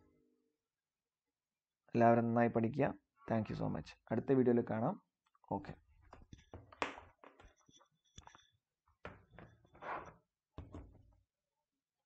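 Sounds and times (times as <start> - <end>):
faint knocks and taps: 10.6 - 11.2.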